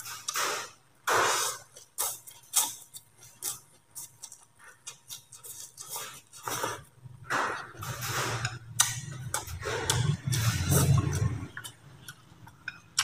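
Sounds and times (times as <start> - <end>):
person slurping noodles: 0.0 - 4.1, 5.4 - 11.7
wet chewing mouth clicks: 7.5 - 13.0.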